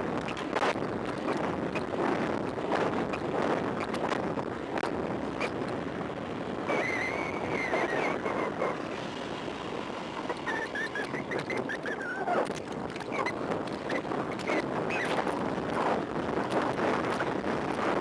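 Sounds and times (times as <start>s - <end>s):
wind rushing over microphone: 0.0s - 18.0s
bicycle brakes squealing: 6.7s - 8.8s, 10.3s - 12.4s.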